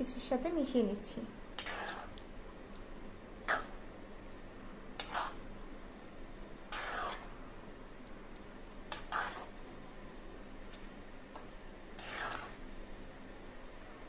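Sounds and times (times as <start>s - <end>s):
metal spatula scraping metal pan: 1.6s - 2.1s, 5.0s - 5.4s, 6.7s - 7.3s, 8.9s - 9.5s, 12.0s - 12.6s.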